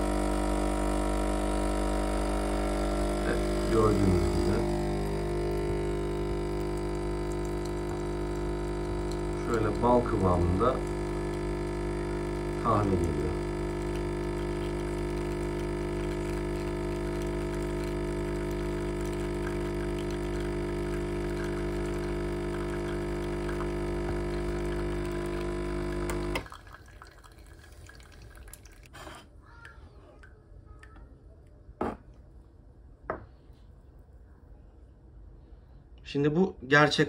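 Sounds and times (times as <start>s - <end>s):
espresso machine pump buzzing: 0.0s - 26.6s.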